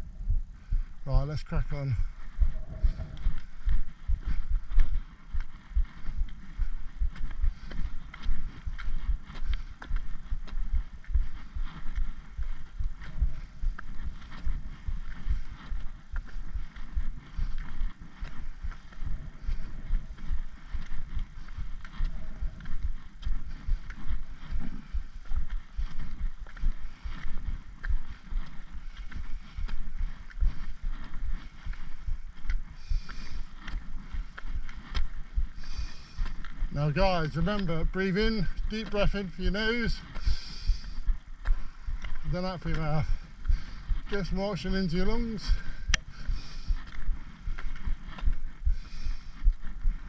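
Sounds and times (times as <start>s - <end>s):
wind buffeting microphone: 0.0s - 50.0s
trekking poles tapping on tarmac: 4.2s - 50.0s.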